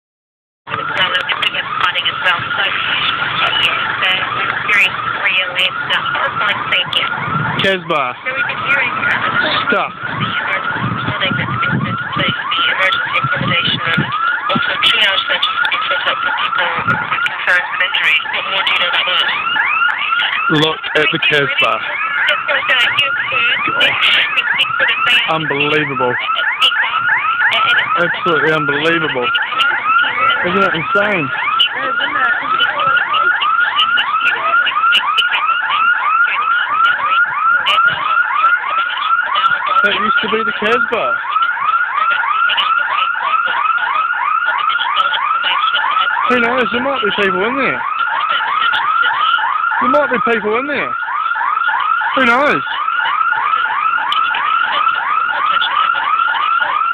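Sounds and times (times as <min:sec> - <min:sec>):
electronic siren whooping: 0:00.7 - 0:56.9.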